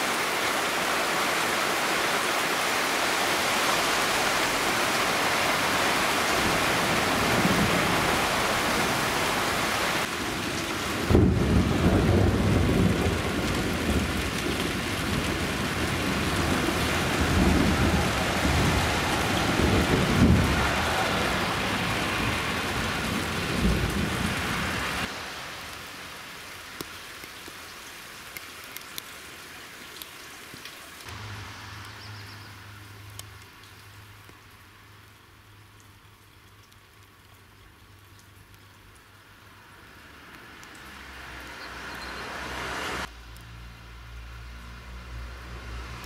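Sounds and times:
rain hissing: 0.0s - 46.0s
rolling thunder rumble: 10.3s - 25.0s
water drips: 25.1s - 44.2s.

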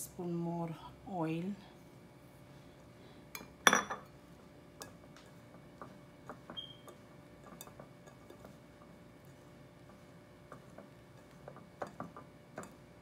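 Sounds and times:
hands mixing flour in glass bowl: 2.8s - 13.0s
glass bowl clinking on stone: 3.4s - 4.1s.

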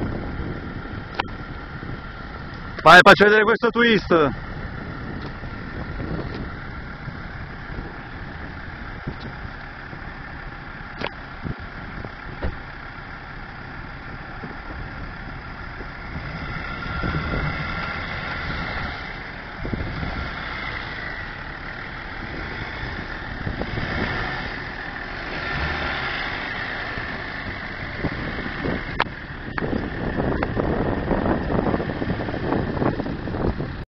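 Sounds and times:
suv engine at low revs: 0.0s - 33.8s.

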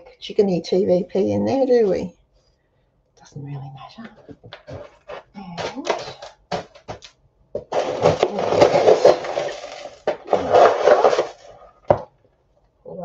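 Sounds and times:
dry chunks rattling as poured: 7.7s - 11.7s.

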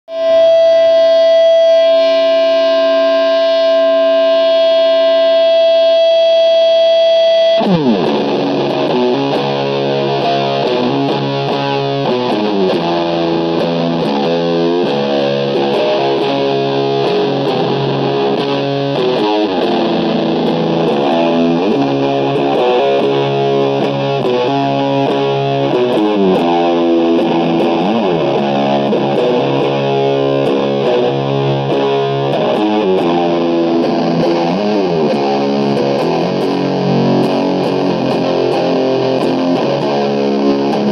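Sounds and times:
distorted electric guitar riff: 0.0s - 40.9s.

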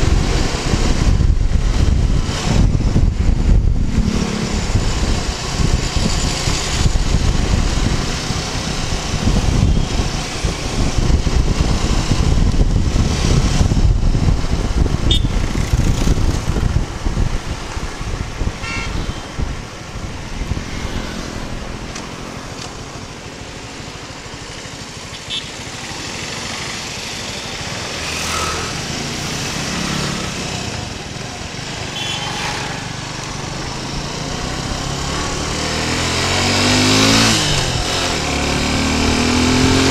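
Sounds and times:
wind rumbling over microphone: 0.0s - 24.8s, 32.8s - 39.9s
motorcycle engine running: 0.0s - 39.9s
traffic: 0.0s - 39.9s
short horn toots: 15.1s - 15.4s, 18.6s - 19.3s, 31.9s - 32.6s.

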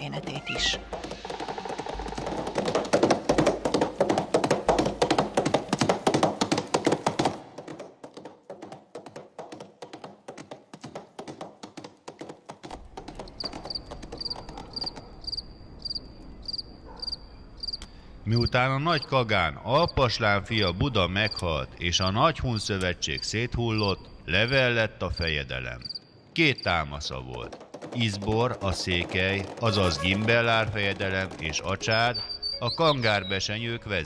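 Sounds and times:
horse hoofbeats: 0.0s - 15.5s, 26.9s - 33.7s
cricket chirping: 13.4s - 17.8s, 23.7s - 26.2s.

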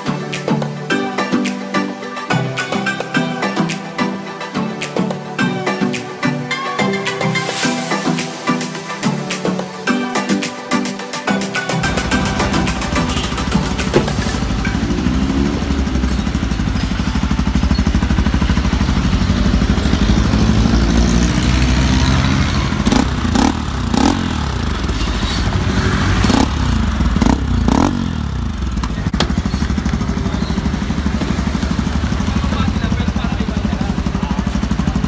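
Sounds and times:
motorcycle engine idling: 11.8s - 21.0s, 22.6s - 35.0s.

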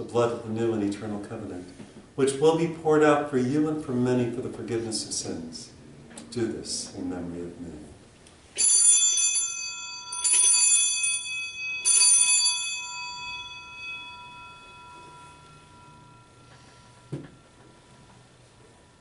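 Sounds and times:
altar bells ringing: 8.6s - 19.0s.

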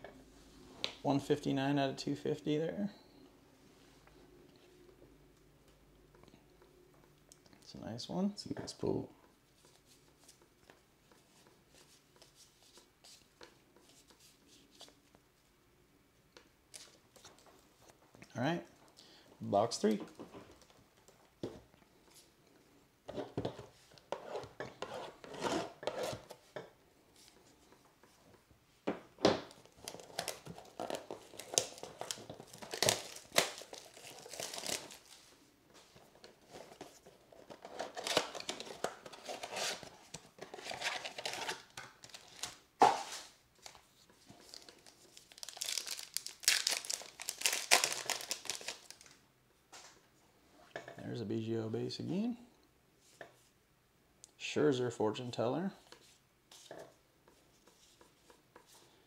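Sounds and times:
card pack wrappers tearing and crinkling: 29.7s - 35.3s, 37.5s - 42.6s, 44.4s - 49.2s.

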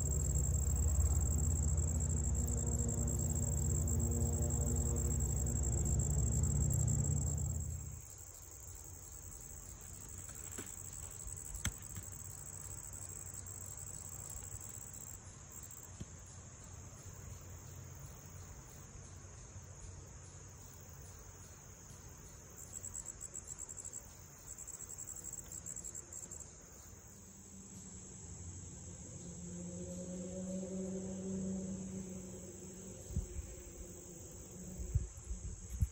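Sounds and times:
loud low hum: 0.0s - 8.3s, 28.7s - 35.9s
insect chorus chirring: 0.0s - 35.9s
pulsing insect trill: 0.0s - 35.9s.

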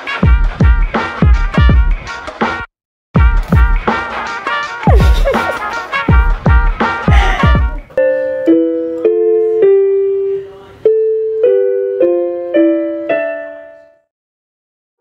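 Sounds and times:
background music with beat: 0.0s - 9.0s
electronic keyboard piano chords: 3.6s - 14.1s.

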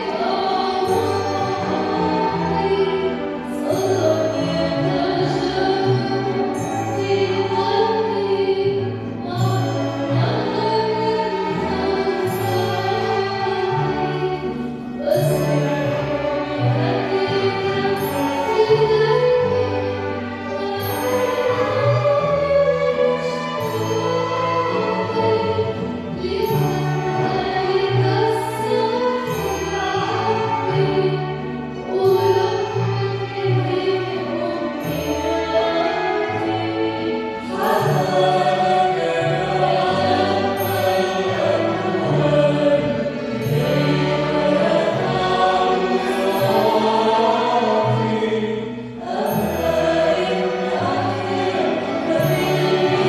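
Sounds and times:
person singing: 0.0s - 53.0s
string ensemble playing slowly: 0.0s - 53.0s
violins: 0.0s - 53.0s.

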